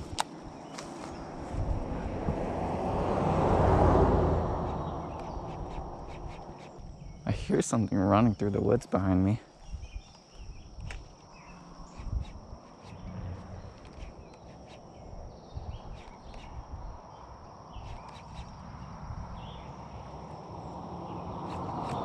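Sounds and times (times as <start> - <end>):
vehicle approaching on road: 0.0 - 7.3, 12.8 - 22.0
handling rumble: 0.0 - 7.4, 11.8 - 15.8
low wind: 0.0 - 22.0
high-pitched insect drone: 4.5 - 22.0.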